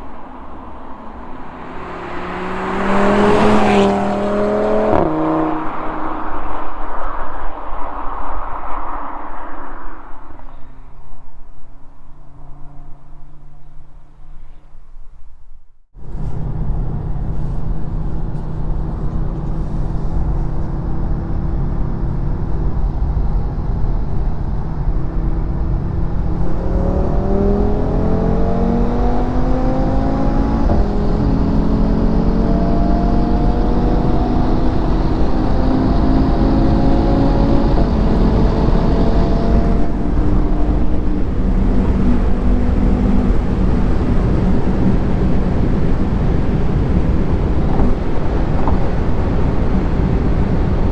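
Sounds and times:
wind noise: 0.0s - 14.8s, 16.0s - 50.9s
road roar: 0.0s - 50.9s
sports car engine revving: 0.9s - 6.3s, 25.0s - 50.3s.

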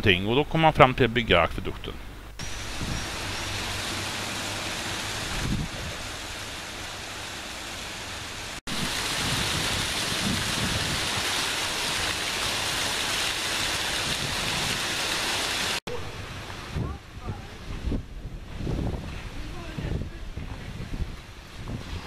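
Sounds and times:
rushing waterfall: 2.4s - 16.8s.

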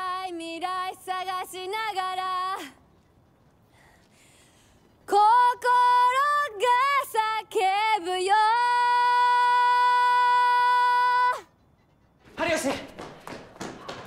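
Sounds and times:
woman singing unaccompanied: 0.0s - 2.8s, 5.1s - 11.5s.

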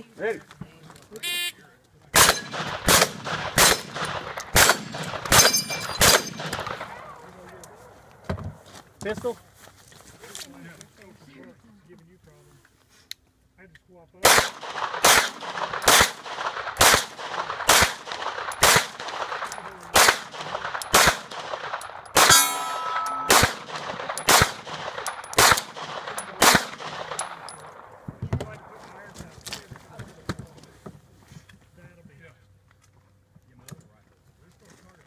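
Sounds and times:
pistol shots: 2.2s - 7.0s, 14.2s - 27.9s
metallic ringing: 22.2s - 23.4s.

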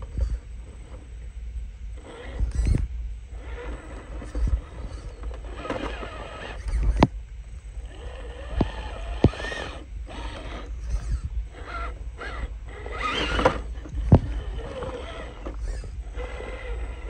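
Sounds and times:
electric motor whining: 1.9s - 17.0s
wind rumble on microphone: 2.3s - 3.2s, 4.1s - 5.2s, 10.1s - 17.0s.

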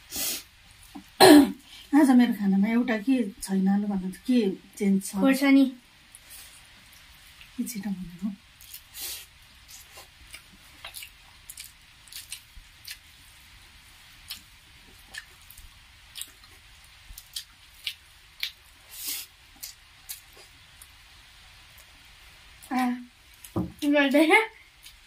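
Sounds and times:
mouths chewing: 14.2s - 20.9s.

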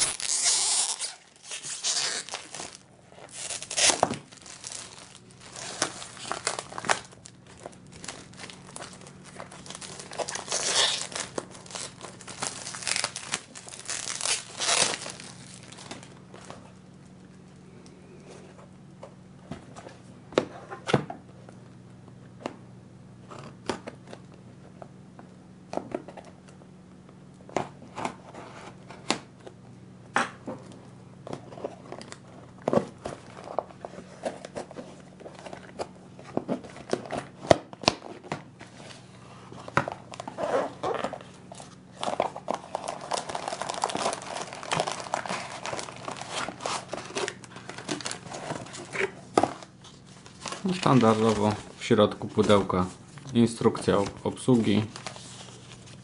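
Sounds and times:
packaging rustling and crinkling: 0.0s - 17.2s, 31.4s - 56.0s.

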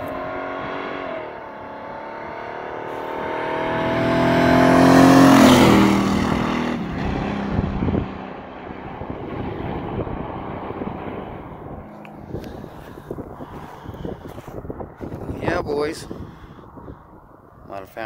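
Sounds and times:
truck accelerating past: 0.0s - 13.5s.

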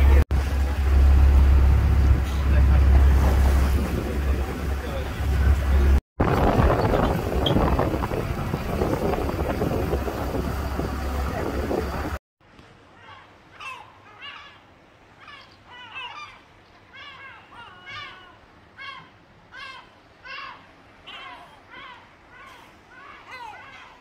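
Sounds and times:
motorboat engine hum: 0.0s - 12.2s
rushing water: 0.0s - 12.2s
wind on microphone: 1.0s - 12.2s
gulls calling: 12.8s - 24.0s.

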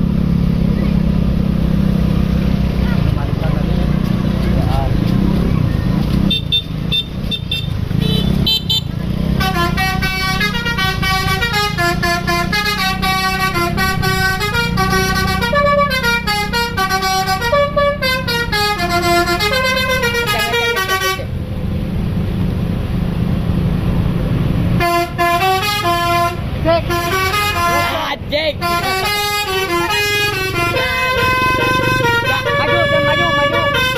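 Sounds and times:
low engine rumble: 0.0s - 33.9s
bus musical horn melody: 6.3s - 21.4s, 24.7s - 33.9s.

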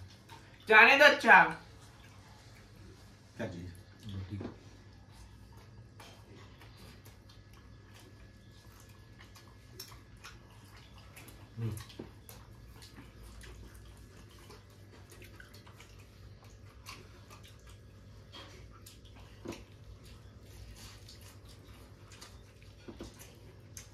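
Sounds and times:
low steady hum: 0.0s - 23.9s
light clicks and taps of eating: 3.7s - 23.9s.

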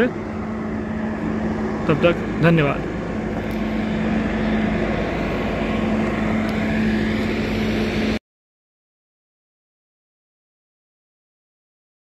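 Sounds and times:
machine drone with low hum: 0.0s - 8.2s.

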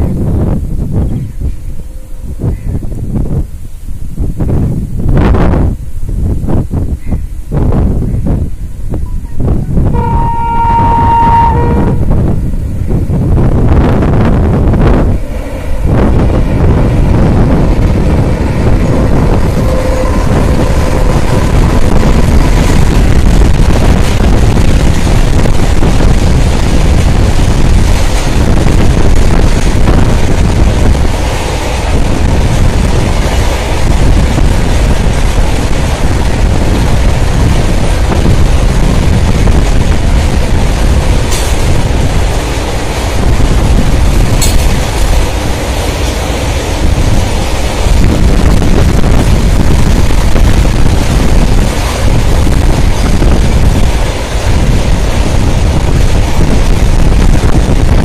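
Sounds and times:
train wheels rumbling on rail: 0.0s - 58.0s
sharp clacks: 41.3s - 41.6s, 44.4s - 45.2s.

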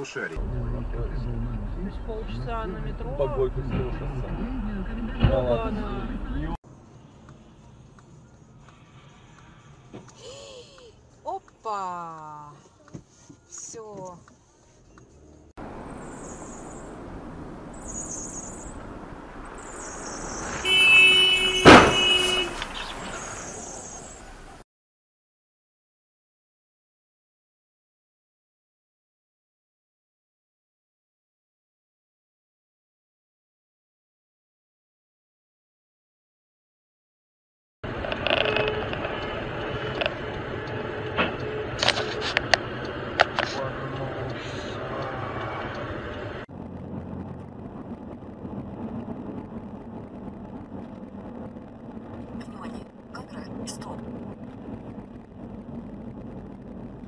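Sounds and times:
car engine and road noise: 0.0s - 24.6s, 37.8s - 57.0s
street noise hiss: 6.7s - 24.6s
car horn: 20.0s - 23.0s, 38.4s - 40.2s
loud car crash: 20.1s - 23.7s.

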